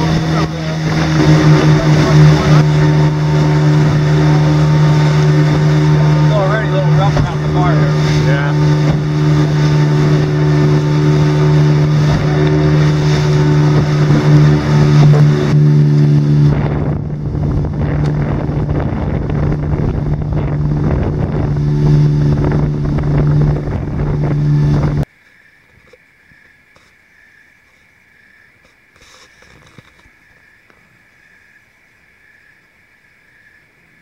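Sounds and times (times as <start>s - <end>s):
engine running steadily: 0.0s - 25.1s
wind on microphone: 0.0s - 25.1s.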